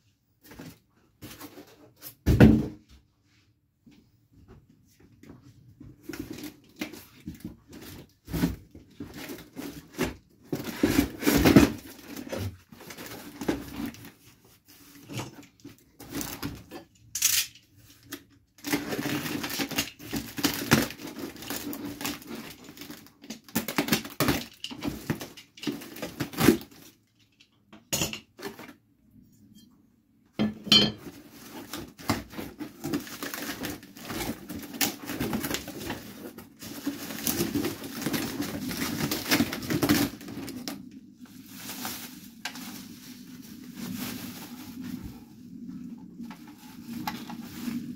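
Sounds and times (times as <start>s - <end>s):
packaging rustling: 6.0s - 16.8s, 17.9s - 27.0s, 31.0s - 47.9s.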